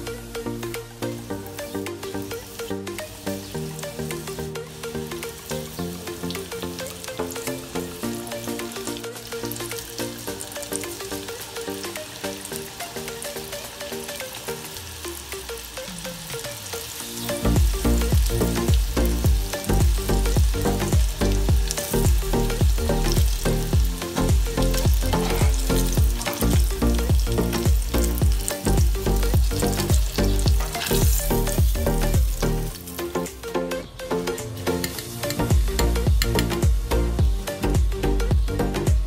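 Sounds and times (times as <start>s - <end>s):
deep-frying sizzle: 0.0s - 33.5s
background music with steady beat: 0.0s - 39.0s.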